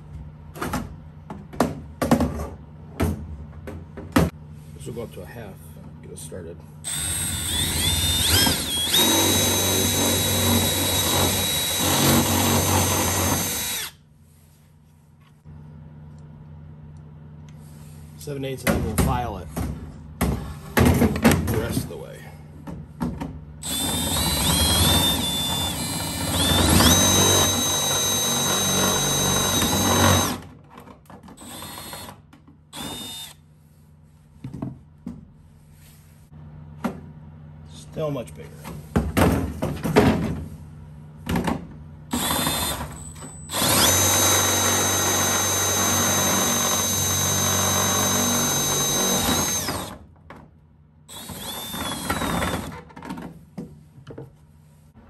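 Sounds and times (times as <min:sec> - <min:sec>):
drill bit grinding through metal: 0:06.9 - 0:14.0, 0:23.6 - 0:30.4, 0:31.4 - 0:32.1, 0:32.8 - 0:33.4, 0:42.1 - 0:49.9, 0:51.1 - 0:52.7
drill motor whine: 0:06.9 - 0:14.0, 0:23.6 - 0:30.4, 0:31.4 - 0:32.1, 0:32.8 - 0:33.4, 0:42.1 - 0:50.0, 0:51.1 - 0:52.7.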